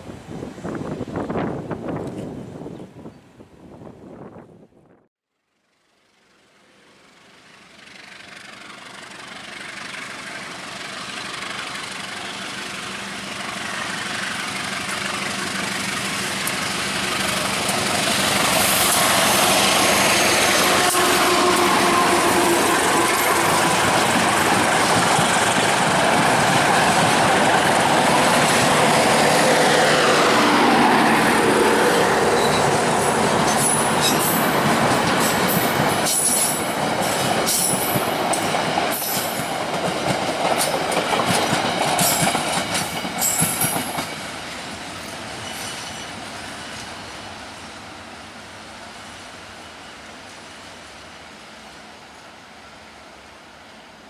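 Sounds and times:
diesel locomotive engine passing: 5.6s - 54.0s
train wheels clattering over rail joints: 33.3s - 44.4s.

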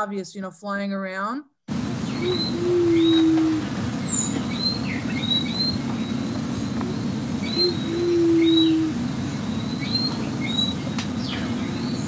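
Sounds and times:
dove low hoot: 2.0s - 12.0s
faint bird chirps: 2.0s - 12.0s.

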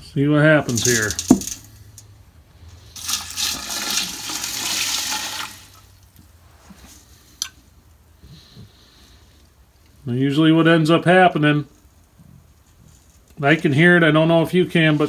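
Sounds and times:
water pouring into a metal pot: 3.0s - 6.0s.

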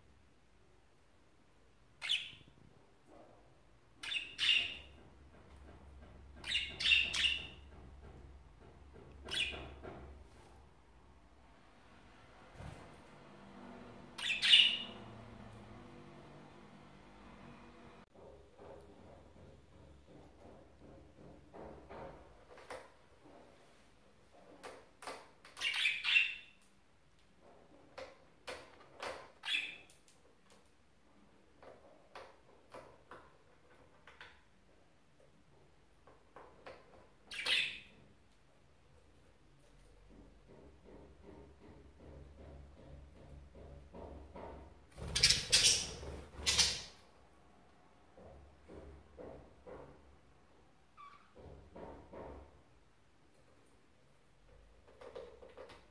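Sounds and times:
budgerigars chirping: 14.2s - 15.0s, 25.6s - 26.5s, 45.2s - 46.9s.

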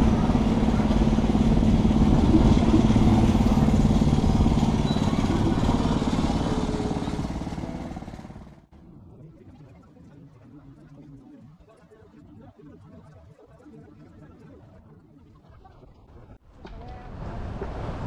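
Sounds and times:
vehicle engine running: 0.0s - 8.7s.

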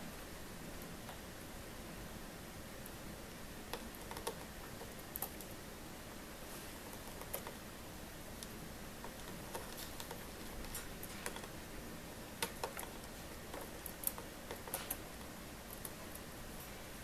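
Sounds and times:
faint steady hiss: 0.0s - 17.0s
bird claws tapping on plastic: 12.4s - 16.0s.

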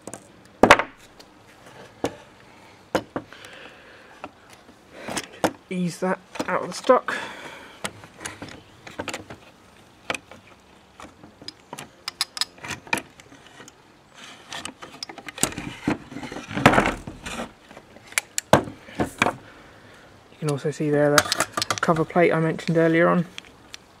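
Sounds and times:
air rifle handling clicks and knocks: 7.8s - 9.4s, 10.1s - 13.8s, 20.4s - 23.9s.

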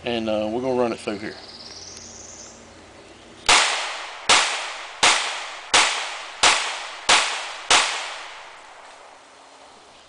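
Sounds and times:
pistol shots echoing: 3.5s - 8.8s.

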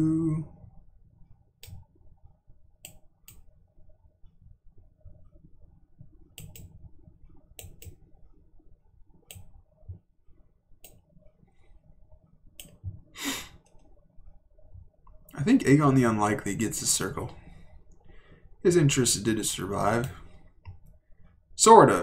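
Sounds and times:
computer mouse clicking: 1.6s - 1.8s, 2.8s - 3.5s, 6.4s - 6.8s, 7.6s - 8.0s, 9.3s - 9.5s, 10.8s - 11.0s, 12.6s - 12.8s.

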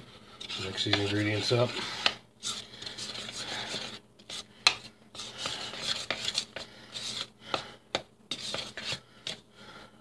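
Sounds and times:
spoon scraping in bowl: 0.4s - 7.3s, 8.3s - 9.4s.

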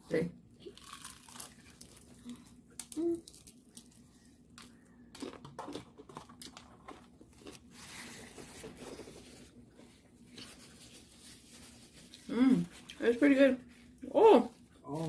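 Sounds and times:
crunchy chewing of fried chicken: 0.6s - 13.0s
paper napkin rustling: 7.7s - 15.0s.

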